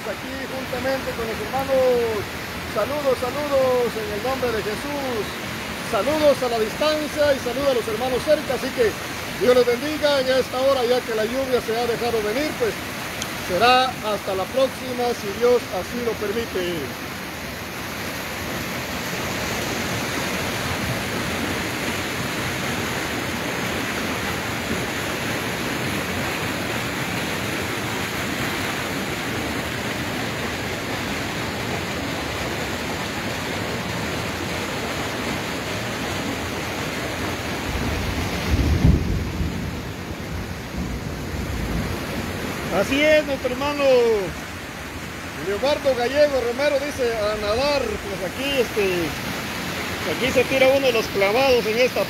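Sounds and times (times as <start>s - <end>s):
steady rain hiss: 0.0s - 52.0s.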